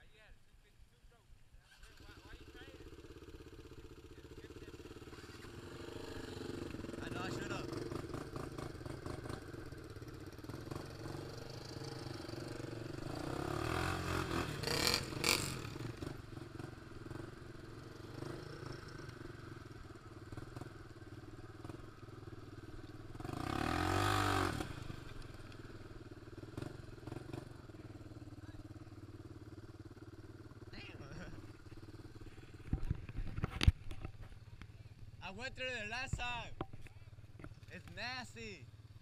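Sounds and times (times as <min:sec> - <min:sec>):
atv engine revving: 0:01.6 - 0:39.0.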